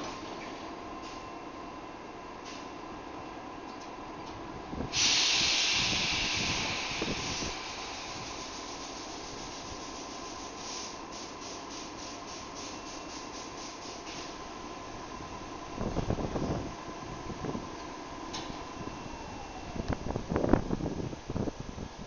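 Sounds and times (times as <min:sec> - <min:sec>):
loud air hiss release: 0:04.9 - 0:14.4
short air puffs: 0:04.9 - 0:14.4
steady hum: 0:05.8 - 0:22.0.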